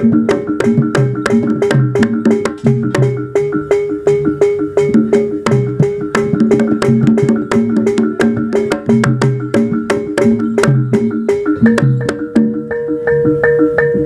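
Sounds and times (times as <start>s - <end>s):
fast drum strokes: 0.0s - 12.8s
held tone: 0.0s - 14.0s
ringing metal percussion: 0.0s - 14.0s.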